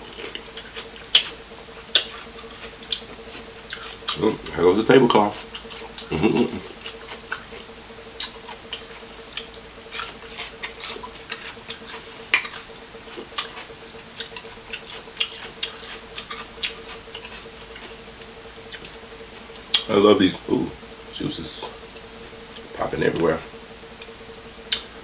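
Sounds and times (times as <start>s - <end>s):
chewing and shell cracking: 0.0s - 19.1s, 24.0s - 25.0s
steady low hum: 0.0s - 25.0s.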